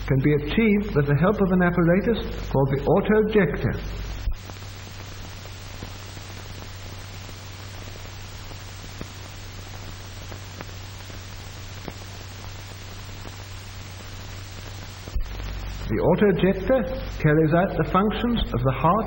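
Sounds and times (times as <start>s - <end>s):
film soundtrack hiss and hum: 0.0s - 19.0s.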